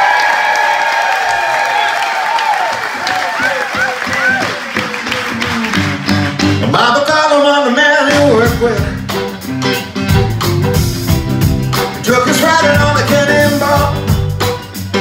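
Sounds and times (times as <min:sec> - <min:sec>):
live rock blues band: 0:04.1 - 0:15.0.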